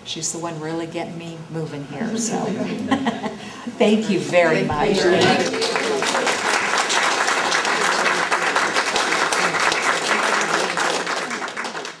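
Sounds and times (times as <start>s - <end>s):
small group applauding: 5.0s - 12.0s.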